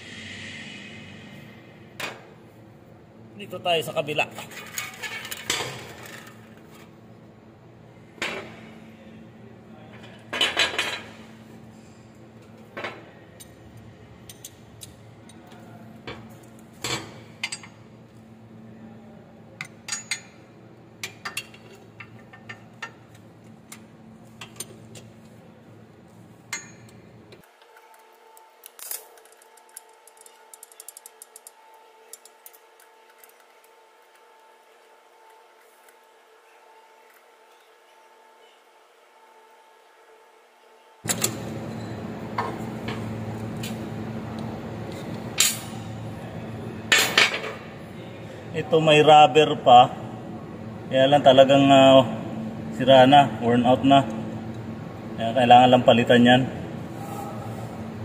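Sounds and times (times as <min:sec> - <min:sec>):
steady low hum: 0:00.0 - 0:27.4, 0:41.0 - 0:58.0
tools clinking on steel frame: 0:19.6 - 0:20.4.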